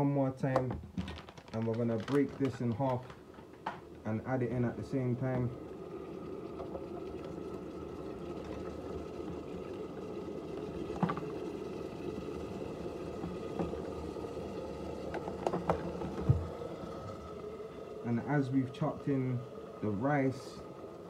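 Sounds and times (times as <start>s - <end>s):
electric kettle heating water: 0.0s - 21.0s
kettle clicks: 0.5s - 3.9s, 5.1s - 5.6s, 8.4s - 11.5s, 12.1s - 17.0s.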